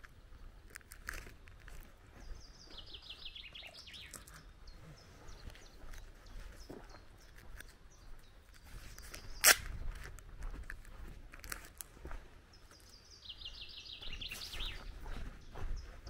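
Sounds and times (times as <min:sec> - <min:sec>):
footsteps on gravel: 0:00.0 - 0:16.0
birds singing: 0:01.8 - 0:09.9, 0:12.4 - 0:16.0.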